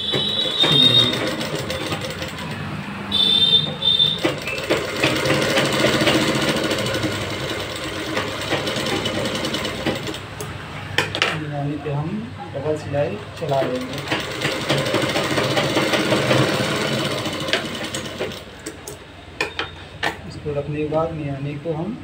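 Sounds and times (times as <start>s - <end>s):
short high tone: 0.0s - 1.7s
sewing machine stitching: 0.0s - 10.3s, 13.3s - 18.8s.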